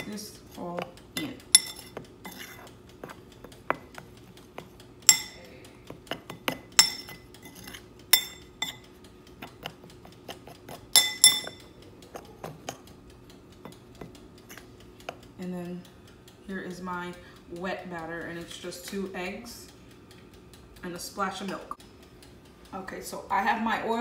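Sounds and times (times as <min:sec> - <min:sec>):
metal spoon clinking in glass bowl: 0:00.0 - 0:03.8, 0:05.1 - 0:05.5, 0:06.1 - 0:08.8, 0:10.7 - 0:12.8.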